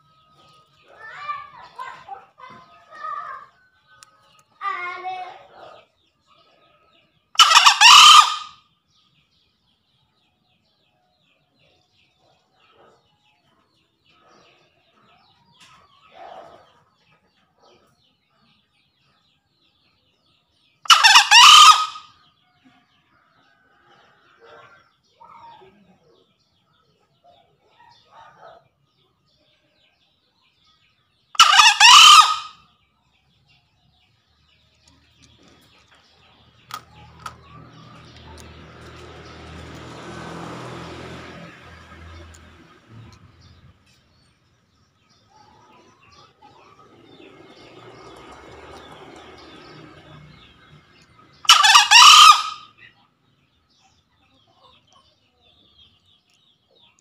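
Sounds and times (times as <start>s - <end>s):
junglefowl crowing: 7.4s - 8.6s, 20.9s - 22.2s, 31.4s - 32.6s, 51.4s - 52.9s.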